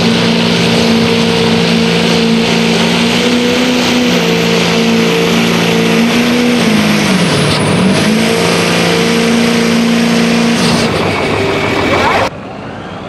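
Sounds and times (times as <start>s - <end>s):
truck engine at high revs: 0.0s - 12.3s
faint high whistle: 12.6s - 13.0s.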